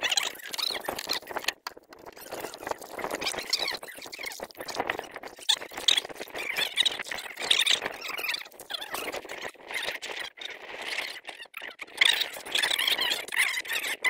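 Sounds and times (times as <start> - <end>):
wet rubbing and sloshing: 0.0 - 9.4.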